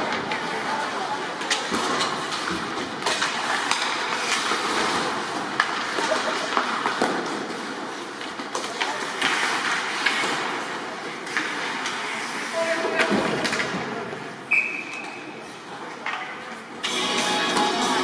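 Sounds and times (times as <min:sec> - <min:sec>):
sticks and puck clacking: 0:00.0 - 0:15.2, 0:15.8 - 0:18.0
skates scraping ice: 0:00.0 - 0:18.0.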